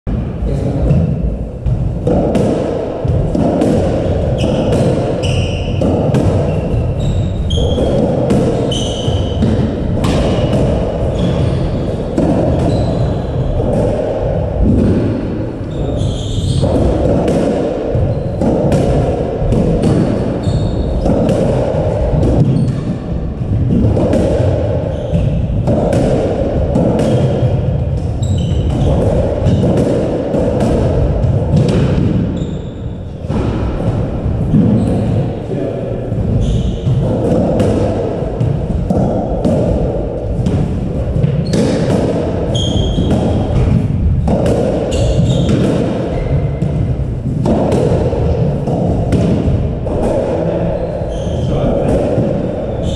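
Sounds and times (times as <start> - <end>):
squash ball smacking walls: 0.6 - 35.4, 36.1 - 52.9
shoes squeaking on court floor: 4.3 - 5.8, 6.4 - 8.0, 8.6 - 9.5, 11.1 - 13.6, 15.7 - 16.7, 20.4 - 21.0, 22.5 - 22.8, 28.2 - 29.6, 32.4 - 32.9, 36.4 - 37.0, 42.5 - 43.6, 44.8 - 46.6, 50.7 - 51.5.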